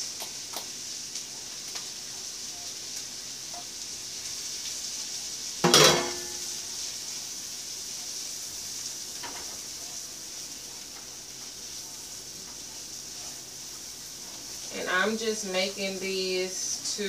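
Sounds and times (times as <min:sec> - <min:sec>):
onions and mushrooms sizzling in pan: 0:00.0 - 0:17.0
utensil clattering against pan: 0:05.6 - 0:06.3.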